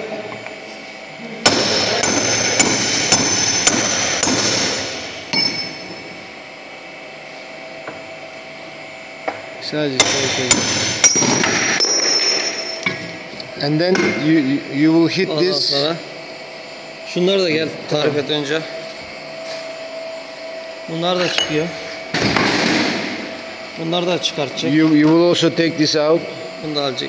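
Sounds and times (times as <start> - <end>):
hammer striking steel: 1.4 - 6.1, 10.0 - 13.1.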